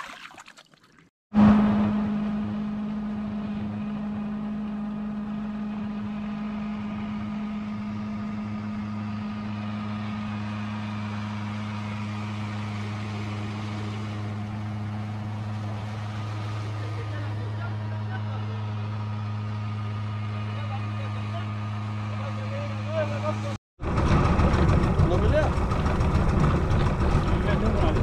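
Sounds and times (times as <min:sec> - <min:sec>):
engine humming steadily: 0:01.4 - 0:28.0.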